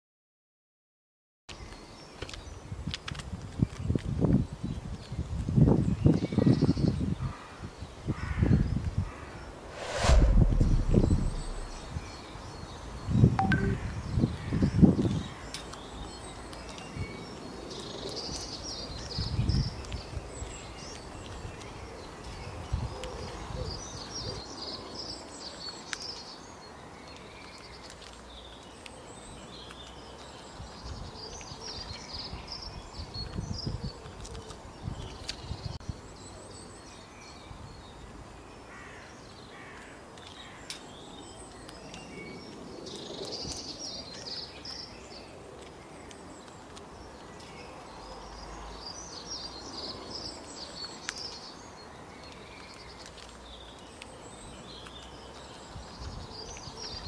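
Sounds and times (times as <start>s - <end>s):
low rumble: 9.6s - 12.2s
small birds chirping: 11.6s - 57.0s.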